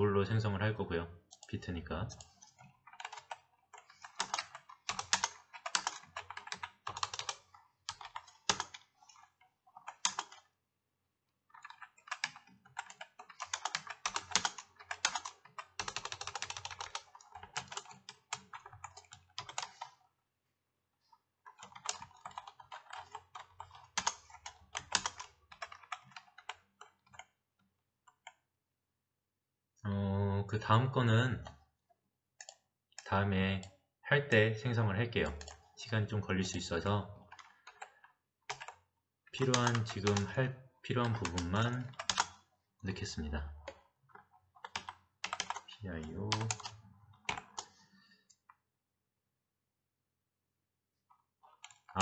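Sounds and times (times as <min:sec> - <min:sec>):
typing on computer keyboard: 0:02.1 - 0:10.6, 0:11.5 - 0:20.0, 0:21.5 - 0:27.4, 0:28.0 - 0:28.4, 0:32.4 - 0:33.7, 0:35.2 - 0:35.7, 0:37.3 - 0:40.4, 0:41.0 - 0:42.5, 0:43.6 - 0:48.5, 0:51.5 - 0:52.0.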